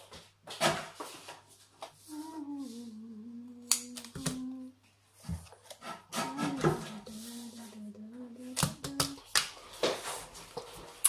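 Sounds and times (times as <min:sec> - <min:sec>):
woman humming: 0:02.0 - 0:04.8, 0:06.2 - 0:09.2.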